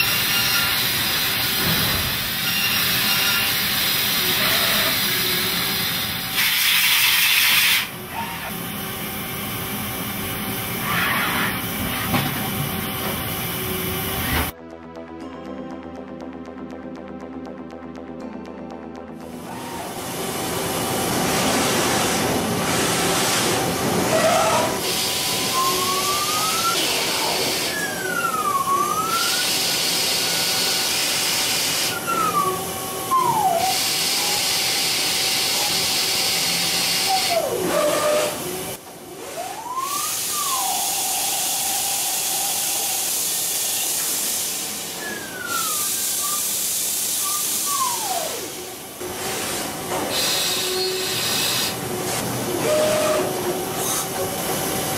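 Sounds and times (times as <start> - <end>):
lathe cutting steel hiss: 0.0 - 7.9, 32.8 - 38.4, 39.9 - 51.8.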